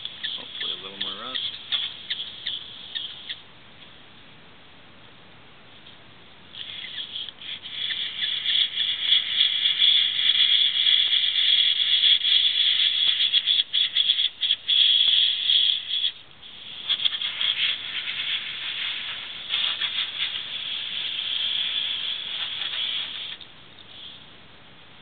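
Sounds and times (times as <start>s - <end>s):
airbrush spraying hiss: 6.6s - 24.2s.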